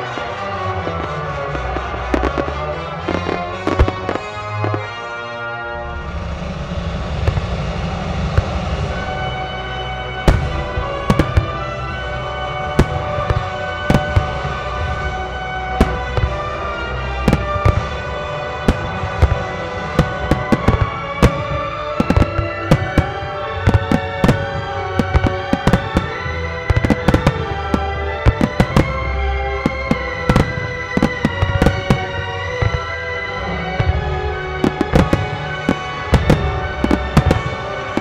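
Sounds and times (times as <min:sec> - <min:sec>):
classical music: 0:00.0 - 0:38.0
firework shells bursting: 0:10.3 - 0:38.0.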